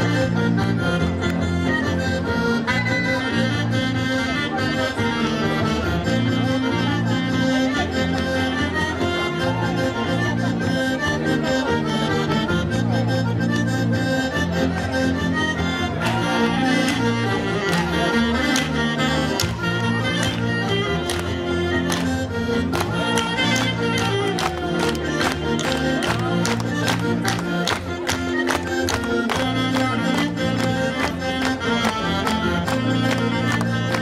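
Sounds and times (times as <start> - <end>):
saxophone: 0.0 - 34.0
traditional dance music band: 0.0 - 34.0.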